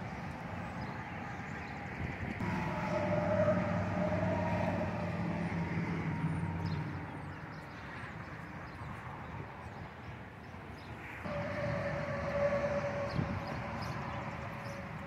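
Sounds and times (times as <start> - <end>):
vehicle engine passing: 2.4 - 8.5, 11.3 - 15.0.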